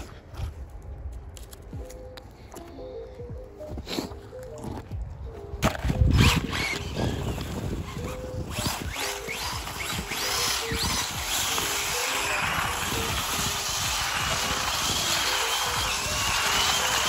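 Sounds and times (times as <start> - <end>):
electric motor whining: 5.9 - 17.0.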